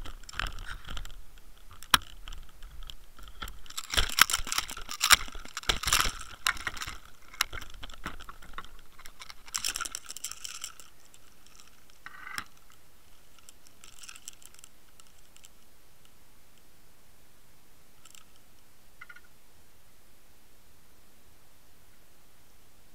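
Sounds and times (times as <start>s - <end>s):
handling clicks and rattles: 0.0s - 15.7s, 18.0s - 19.2s.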